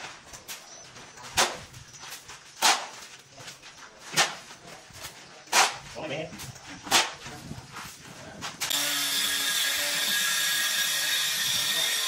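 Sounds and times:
shovel scraping concrete: 6.8 - 8.8.

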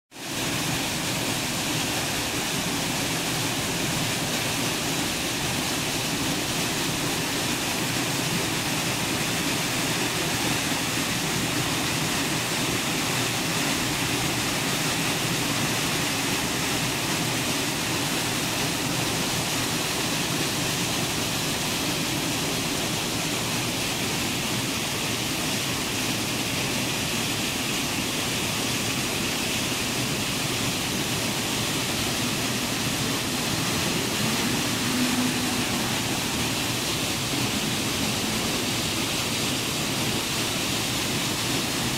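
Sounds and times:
waterfall rushing: 0.2 - 41.9.

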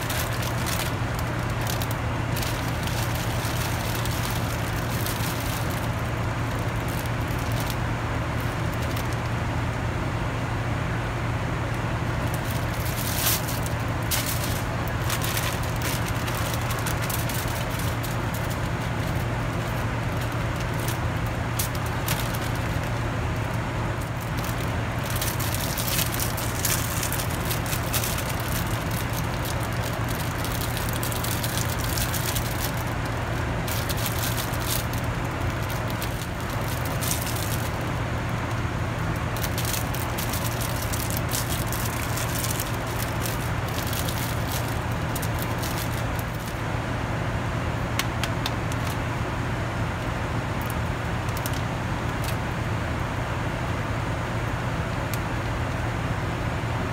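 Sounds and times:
plastic packaging crinkling: 0.0 - 9.4, 11.7 - 46.7, 48.0 - 49.0
airliner cabin roar: 0.0 - 56.9.

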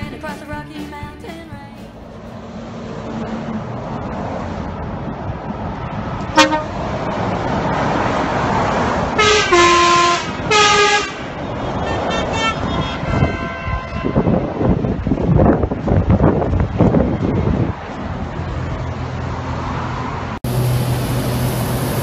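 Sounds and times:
lorry engine and tyres rumbling: 0.0 - 22.0
lorry air horn blasts: 6.4 - 6.7, 9.2 - 11.2, 11.8 - 14.3.

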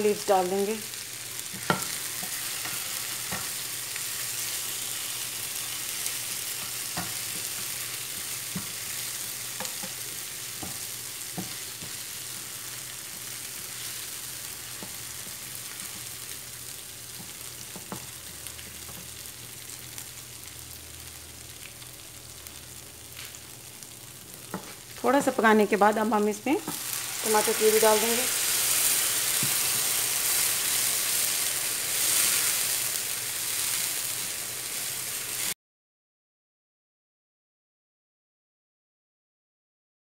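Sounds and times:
food sizzling in oil: 0.0 - 35.6
spoon clicking and scraping pan: 1.5 - 3.6, 6.6 - 8.8, 9.6 - 10.0.

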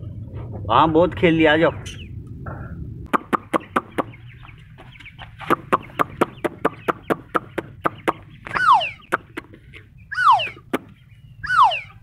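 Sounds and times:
ducklings peeping: 3.1 - 12.0.

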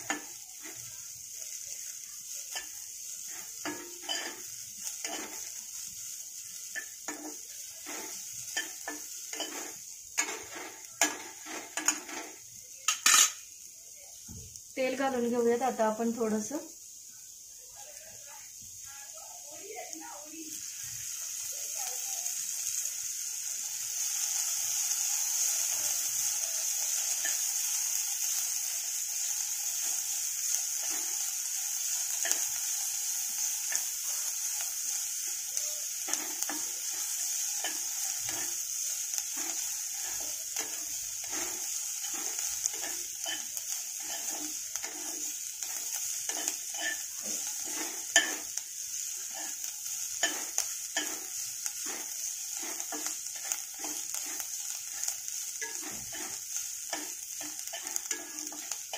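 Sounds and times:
spoon stirring and scraping pan: 0.0 - 13.5, 24.1 - 58.9
onion sizzling in hot oil: 0.0 - 58.9
spoon knocking on pan: 2.5 - 4.4, 6.8 - 13.4, 46.3 - 48.5, 50.2 - 54.4, 55.6 - 58.8.

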